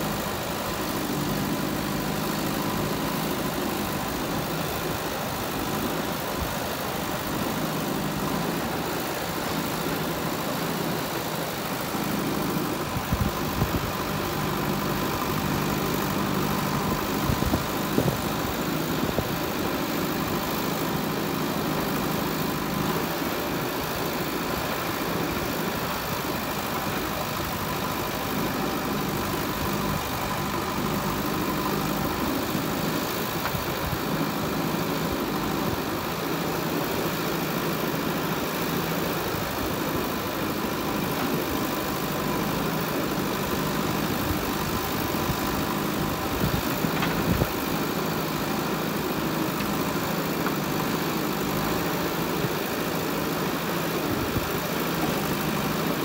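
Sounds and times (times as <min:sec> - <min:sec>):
diesel engine running under load: 0:00.0 - 0:56.0.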